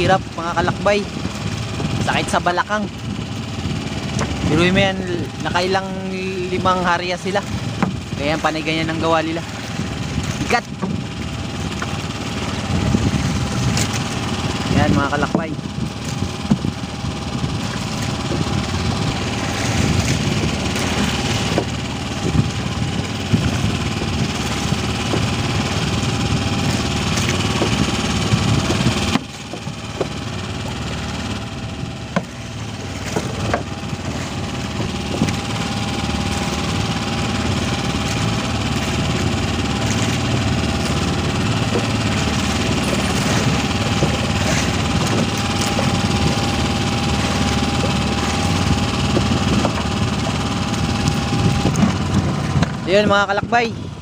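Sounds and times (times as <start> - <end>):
small boat engine idling: 0.0 - 54.0.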